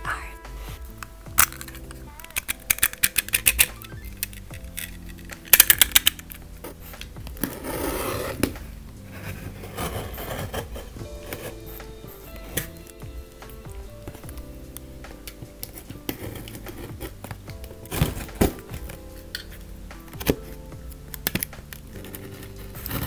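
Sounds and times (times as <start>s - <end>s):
soft background music: 0.0s - 23.0s
packaging clicks and crackles: 1.4s - 6.4s, 21.2s - 23.0s.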